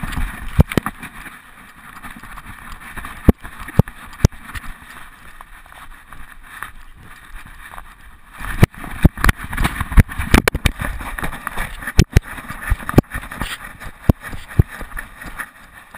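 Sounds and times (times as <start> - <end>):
camera rattling in harness: 0.0 - 15.9.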